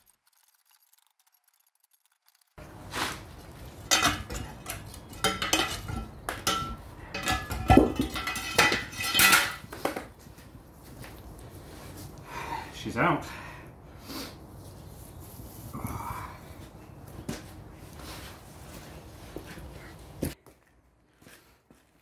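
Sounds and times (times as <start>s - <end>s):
crowbar clanking on iron: 3.8s - 9.7s.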